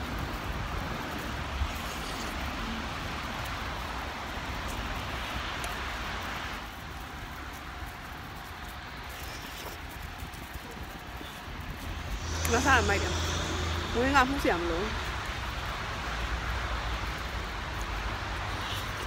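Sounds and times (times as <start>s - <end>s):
passing car tyre hiss: 11.7s - 19.0s.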